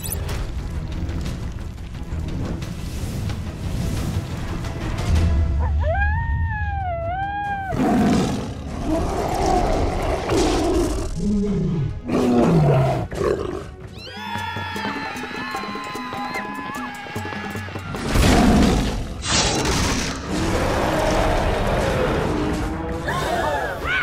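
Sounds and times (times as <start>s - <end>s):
background music: 0.0s - 24.0s.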